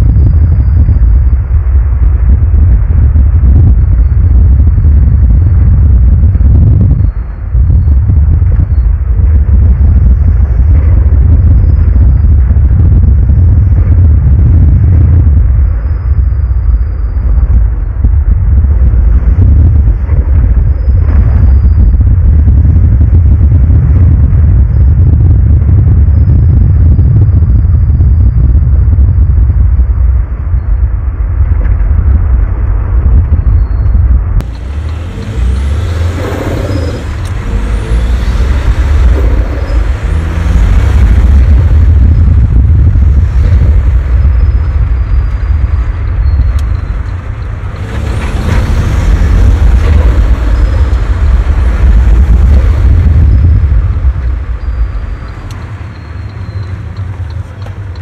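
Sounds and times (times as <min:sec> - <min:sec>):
tyre and suspension rumble: 0:00.0 - 0:58.0
road hiss: 0:34.4 - 0:46.1.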